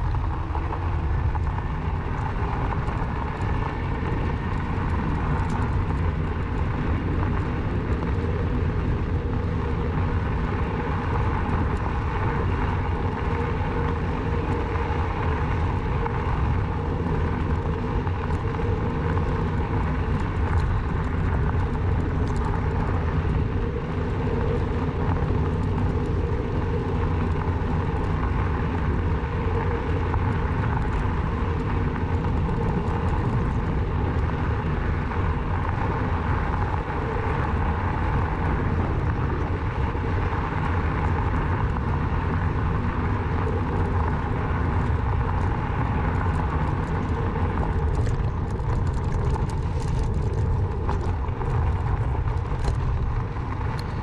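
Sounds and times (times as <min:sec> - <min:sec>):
electric bike low rumble: 0:00.0 - 0:54.0
faint hum: 0:00.0 - 0:54.0.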